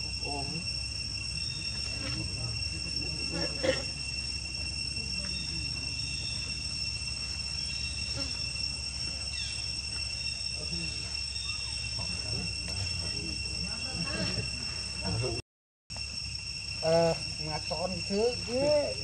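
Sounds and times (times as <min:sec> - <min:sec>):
insect chorus shrill drone: 0:00.0 - 0:19.0.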